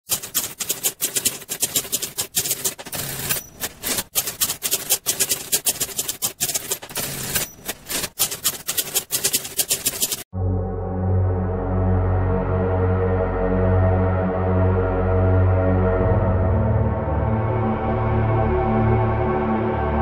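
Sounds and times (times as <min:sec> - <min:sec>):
typewriter typing: 0:00.1 - 0:10.3.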